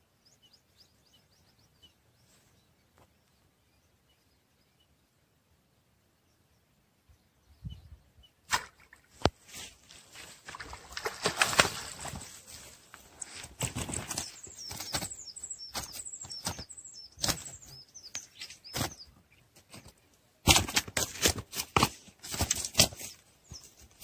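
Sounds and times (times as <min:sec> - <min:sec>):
fish slapping on grass: 0:08.5 - 0:17.6, 0:18.7 - 0:19.0, 0:20.4 - 0:23.2
fish thrashing in water: 0:10.3 - 0:12.4.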